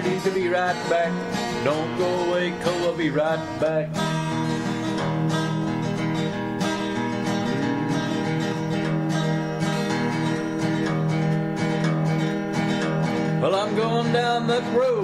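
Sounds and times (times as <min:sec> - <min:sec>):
strummed acoustic guitar country music: 0:00.0 - 0:15.0.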